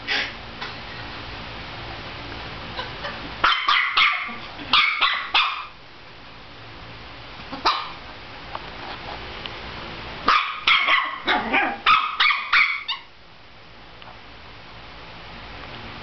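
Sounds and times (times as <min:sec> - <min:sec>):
puppy yapping: 0:02.8 - 0:05.8, 0:07.5 - 0:08.0, 0:10.3 - 0:13.1.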